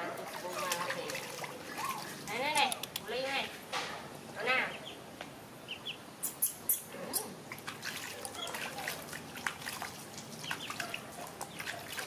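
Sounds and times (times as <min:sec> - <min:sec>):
water splashing in a basin: 0:00.0 - 0:02.8, 0:07.4 - 0:12.0.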